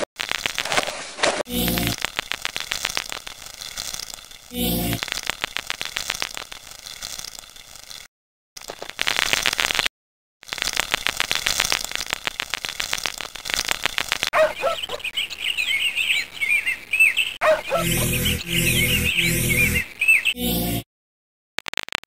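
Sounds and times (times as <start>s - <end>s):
rapid dry ticking: 0.0s - 0.8s, 1.6s - 9.8s, 10.4s - 14.3s
songbirds chirping: 14.4s - 20.4s.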